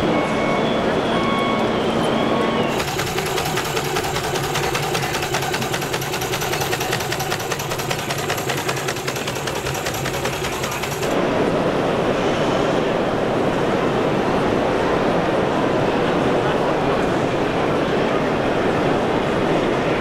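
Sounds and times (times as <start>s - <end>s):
crowd chatter: 0.0s - 12.0s, 12.7s - 20.0s
steam engine mechanical clatter: 2.7s - 11.2s.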